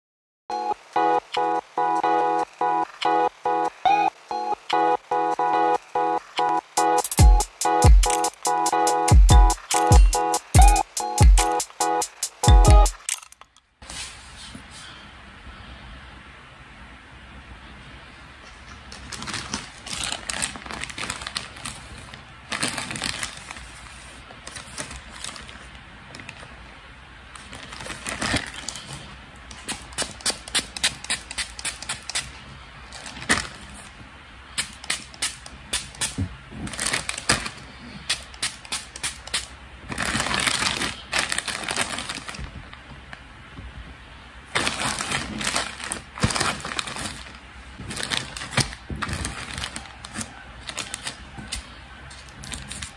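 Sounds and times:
plastic mailer crinkling: 0:18.7 - 0:30.8, 0:36.6 - 0:39.0, 0:39.8 - 0:43.3, 0:44.5 - 0:52.9.

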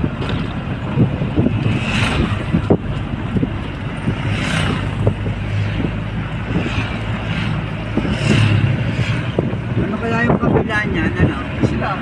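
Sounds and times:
vehicle engine hum and road noise: 0:00.0 - 0:12.0
motorcycle passing: 0:03.4 - 0:10.1.

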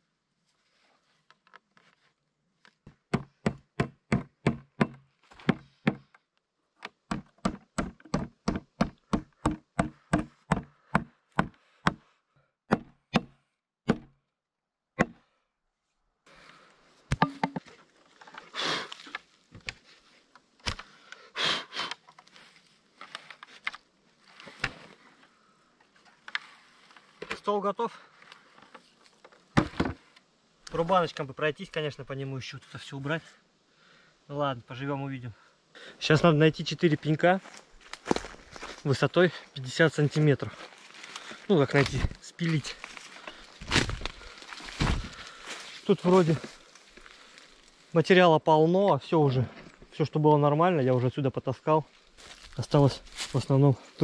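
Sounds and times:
rapid hammering on wood: 0:03.1 - 0:06.0, 0:07.1 - 0:12.0
wood rustling and knocking: 0:06.8 - 0:12.0, 0:17.1 - 0:18.4, 0:28.7 - 0:30.0, 0:43.2 - 0:45.2.

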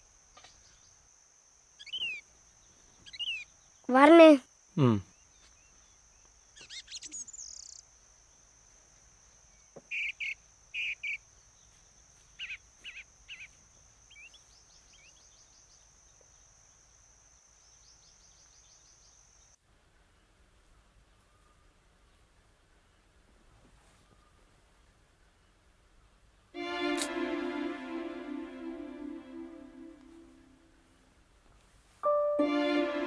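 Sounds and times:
high insect drone: 0:00.0 - 0:19.6
birds chirping: 0:01.8 - 0:08.4, 0:09.5 - 0:16.5.

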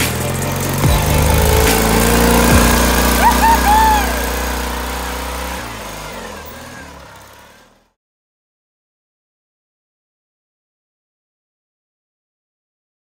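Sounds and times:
riding mower engine running: 0:00.0 - 0:07.9
person shouting: 0:01.0 - 0:04.6.

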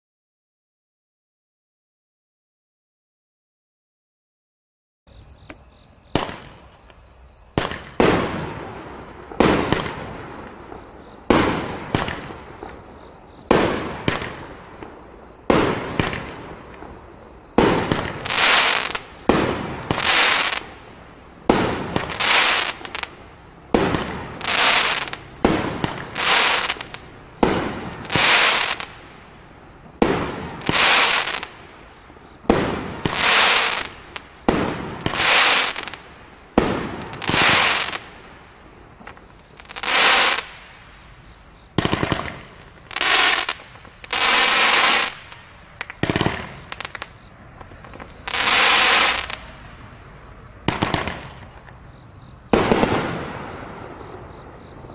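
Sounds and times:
firework shots with crackling: 0:06.1 - 0:06.8, 0:07.5 - 0:40.8, 0:41.7 - 0:49.7, 0:50.6 - 0:51.8, 0:52.5 - 0:54.9.

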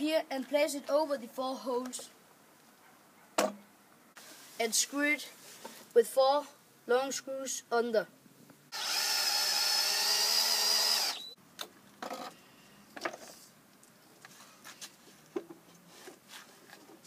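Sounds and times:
cordless drill driving screw: 0:08.7 - 0:11.3.

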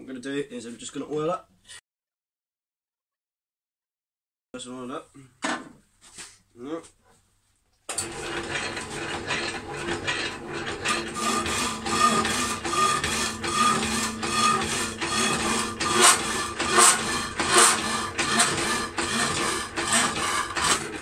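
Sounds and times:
power hacksaw cutting steel: 0:07.9 - 0:21.0.

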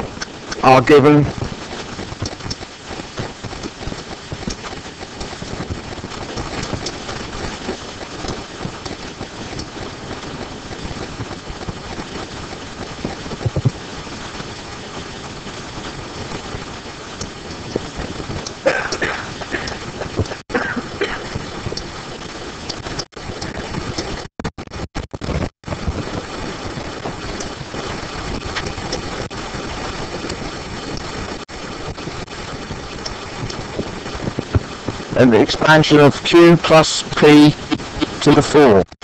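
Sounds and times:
stylus scratching and tapping: 0:00.0 - 0:12.2, 0:12.8 - 0:13.8, 0:17.2 - 0:20.4, 0:27.0 - 0:29.4, 0:31.8 - 0:38.9
hiss-like background hum: 0:17.2 - 0:22.0.

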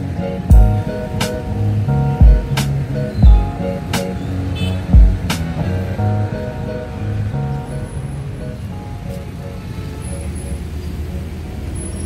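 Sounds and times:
held-note tune over bass line: 0:00.0 - 0:09.2.

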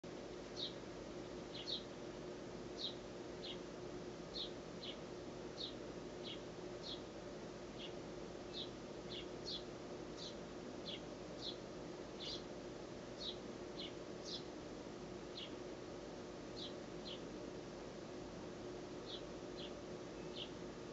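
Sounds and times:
fledgling bird begging chirps: 0:00.6 - 0:00.8, 0:01.5 - 0:01.9, 0:02.8 - 0:03.6, 0:04.3 - 0:05.0, 0:05.6 - 0:07.1, 0:07.8 - 0:11.6, 0:12.2 - 0:12.5, 0:13.2 - 0:14.5, 0:19.0 - 0:20.6.

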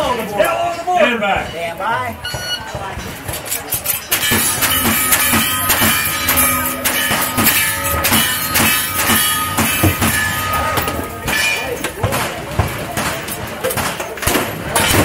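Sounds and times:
steel targets ringing: 0:03.7 - 0:15.0.

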